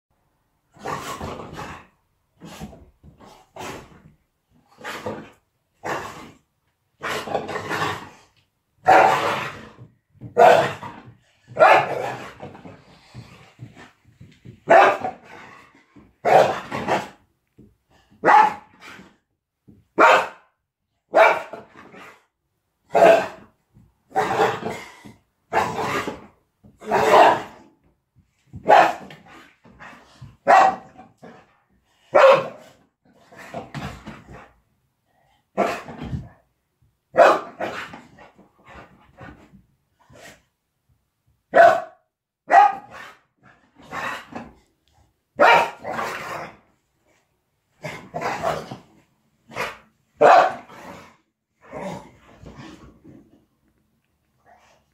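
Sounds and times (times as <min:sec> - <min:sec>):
dog barking and growling: 0:07.0 - 0:13.6, 0:14.6 - 0:17.3, 0:18.0 - 0:19.2, 0:19.9 - 0:27.8, 0:28.5 - 0:34.6, 0:35.4 - 0:36.4, 0:37.1 - 0:39.5, 0:41.5 - 0:44.6, 0:45.3 - 0:46.7, 0:47.7 - 0:53.3.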